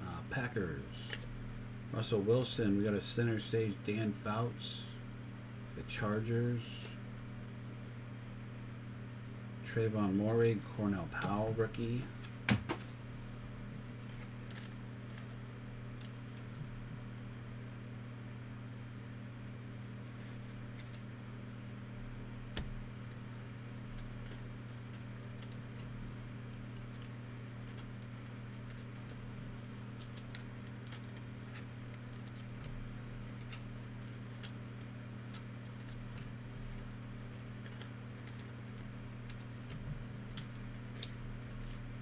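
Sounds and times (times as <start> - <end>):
steady low hum: 0.0 - 42.0
cards ticking and rustling: 14.0 - 16.6, 20.1 - 21.1, 23.8 - 42.0.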